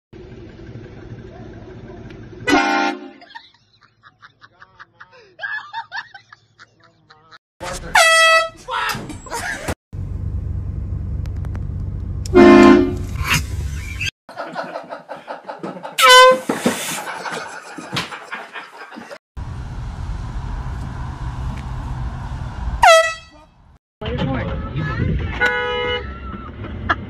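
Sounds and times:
loud air horn blasts: 2.4s - 3.2s, 7.9s - 8.6s, 12.3s - 13.1s, 16.0s - 16.6s, 22.8s - 23.4s, 25.4s - 26.1s
low rumble: 19.4s - 22.8s.

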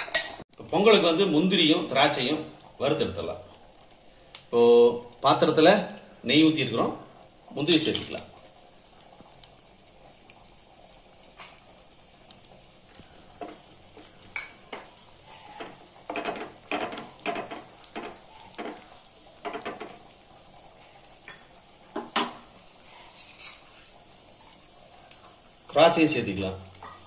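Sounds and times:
nuts sizzling in oil: 0.0s - 27.0s
spatula scraping and knocking pan: 14.3s - 20.1s.

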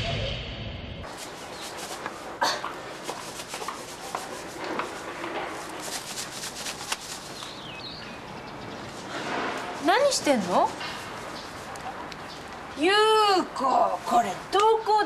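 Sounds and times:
rustling and scraping: 1.0s - 8.0s, 8.7s - 12.6s.

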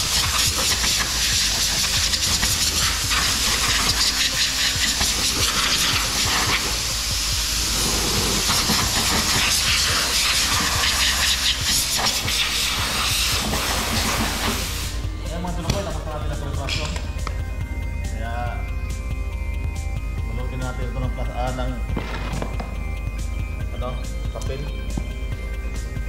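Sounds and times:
compressed air hissing from blow gun: 0.0s - 15.1s.

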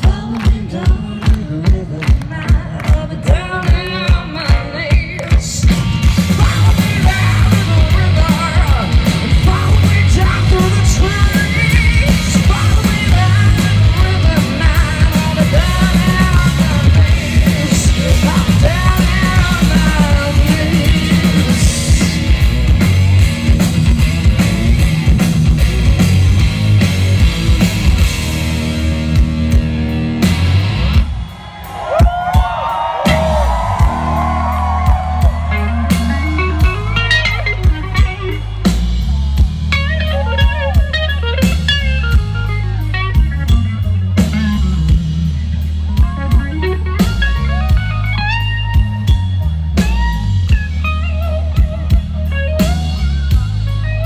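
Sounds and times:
female lead vocals: 0.0s - 5.6s, 9.4s - 22.2s
bass guitar: 0.0s - 54.0s
distorted electric guitar: 0.0s - 54.0s
drum kit: 0.0s - 54.0s
lead guitar line: 2.2s - 54.0s.

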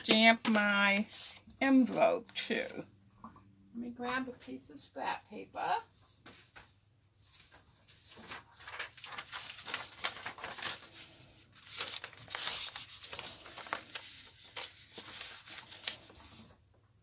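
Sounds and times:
paper rustling and crinkling: 0.0s - 2.8s, 6.0s - 16.8s.

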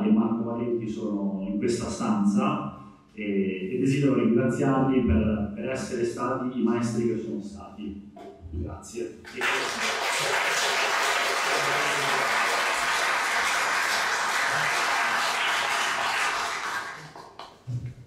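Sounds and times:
audience applauding: 9.3s - 17.6s.

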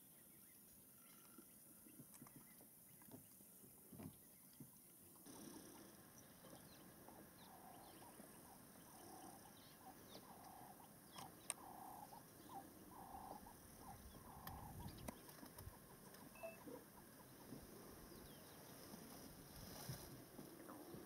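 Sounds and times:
small birds chirping: 0.0s - 21.0s
faint clicks: 10.3s - 11.7s, 14.2s - 16.4s.

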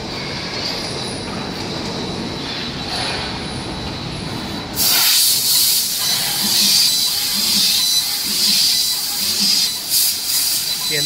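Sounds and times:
loud gas hiss: 4.8s - 10.8s.

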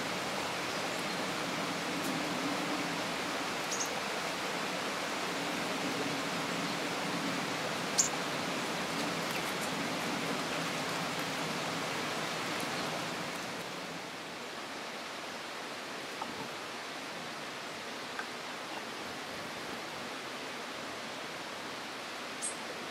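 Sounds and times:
rushing outdoor background noise: 0.0s - 22.9s
songbird call: 3.7s - 4.0s, 7.9s - 8.2s.

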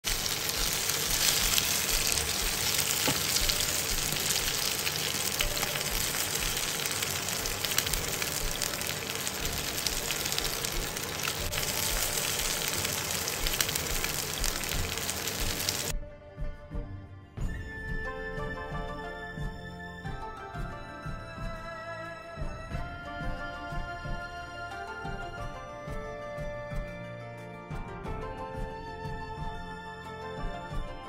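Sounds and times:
fish sizzling in hot oil: 0.0s - 15.9s
oil popping and crackling: 0.0s - 15.9s.

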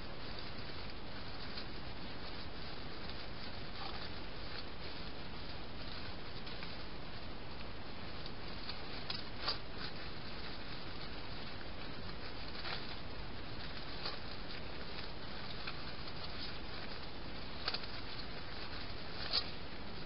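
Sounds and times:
hedgehogs rustling on ground: 0.0s - 20.0s
microphone hiss: 0.0s - 20.0s.

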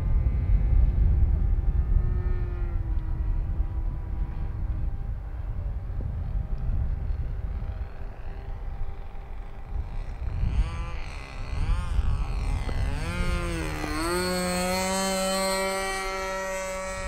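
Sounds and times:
model airplane engine droning: 0.0s - 17.0s.

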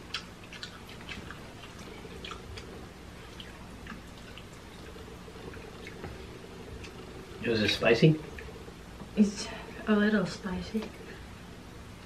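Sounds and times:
person slurping and chewing noodles: 0.0s - 7.5s.

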